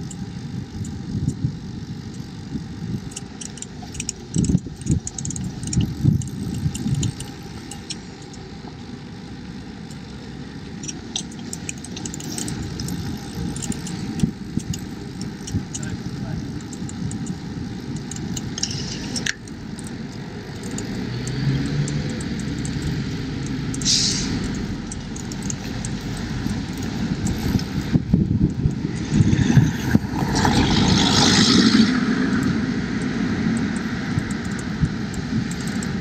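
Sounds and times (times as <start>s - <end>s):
street traffic rumble: 0.0s - 36.0s
motor vehicle passing close: 17.9s - 36.0s.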